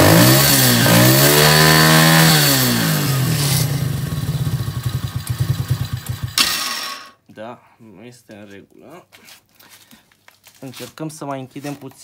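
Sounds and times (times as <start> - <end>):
atv engine revving and idling: 0.0 - 7.1.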